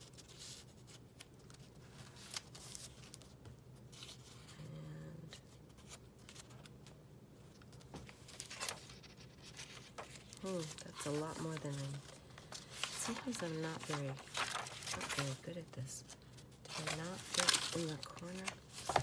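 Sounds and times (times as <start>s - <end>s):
paper rustling: 0.0s - 4.5s, 5.4s - 7.0s, 7.6s - 19.0s.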